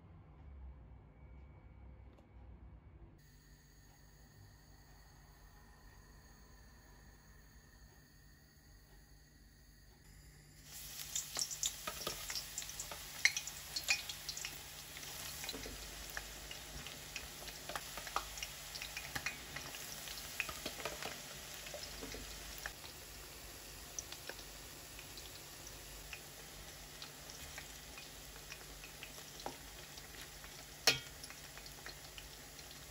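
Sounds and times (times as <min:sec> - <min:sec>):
deep-frying sizzle with crackles: 0:10.2 - 0:32.9.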